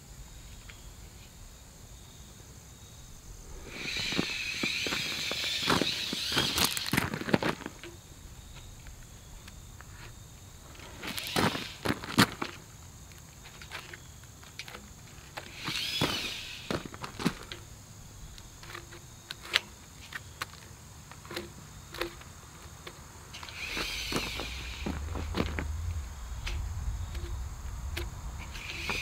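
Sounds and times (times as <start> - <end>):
short high rising and falling calls: 3.4 - 7.2, 15.5 - 16.9, 23.4 - 29.0
tape measure clicks: 15.4 - 17.6
footsteps crunching on gravel: 23.6 - 28.2
low rumble: 23.9 - 29.0.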